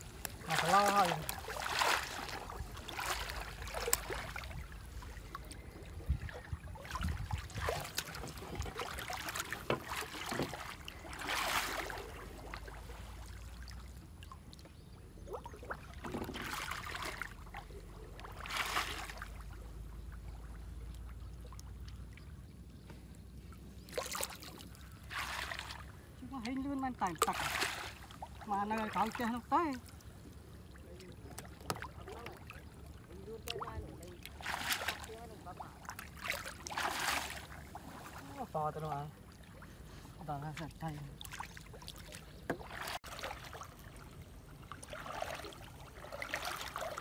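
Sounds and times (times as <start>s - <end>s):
water sloshing around legs: 0.0s - 22.4s, 23.0s - 47.0s
water trickling off net: 0.1s - 5.1s.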